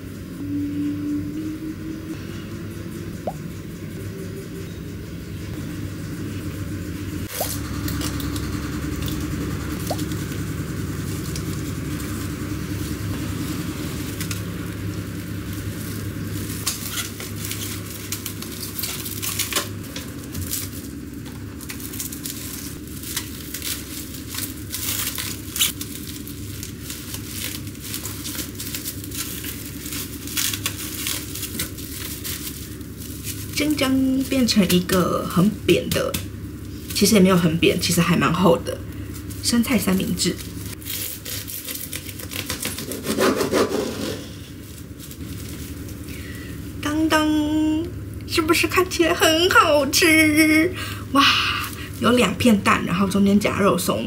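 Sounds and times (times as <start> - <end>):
low hum: 0.0 - 42.8
cling film crinkling: 9.8 - 38.0, 38.6 - 43.1, 44.4 - 46.8, 50.3 - 53.2.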